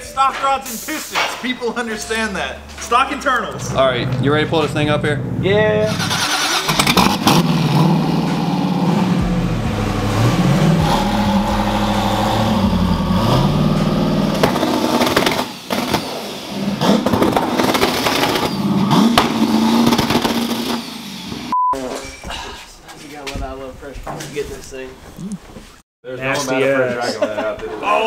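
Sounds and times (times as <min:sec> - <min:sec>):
car engine revving: 0:02.1 - 0:21.5.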